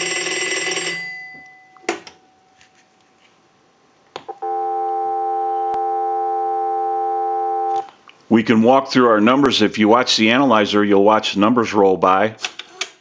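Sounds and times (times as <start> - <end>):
telephone bell ringing: 0.0 - 1.8, 4.4 - 7.8
telephone dial tone: 4.3 - 7.9.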